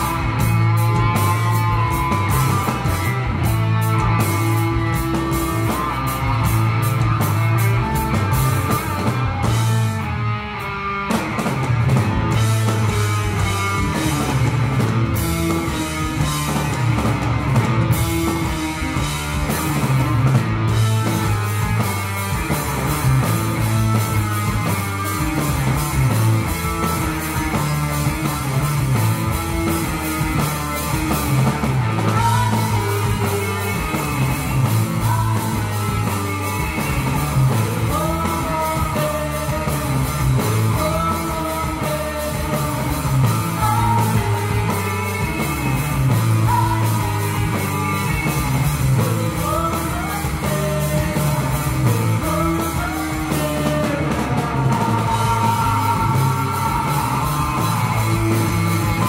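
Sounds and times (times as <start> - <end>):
hard rock band playing: 0.0 - 59.0
woman singing lead vocal: 32.0 - 59.0.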